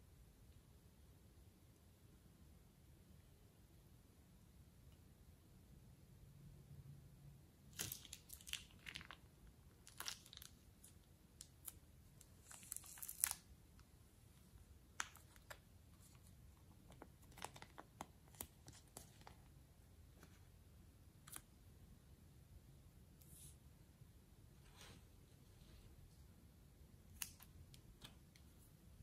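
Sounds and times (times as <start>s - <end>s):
plastic bag crinkling: 7.8s - 10.6s.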